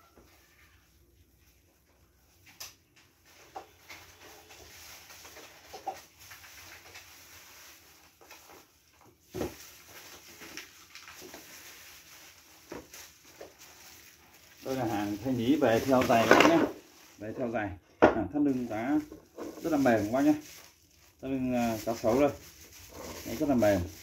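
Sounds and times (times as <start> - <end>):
objects handled knocking and rustling: 2.4 - 7.1, 8.2 - 11.6, 12.6 - 14.0, 14.6 - 17.2, 17.9 - 20.8.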